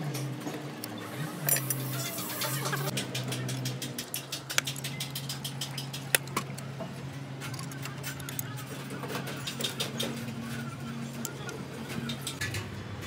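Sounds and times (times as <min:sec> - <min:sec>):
metal parts clicking: 0:00.8 - 0:06.7, 0:07.4 - 0:10.3.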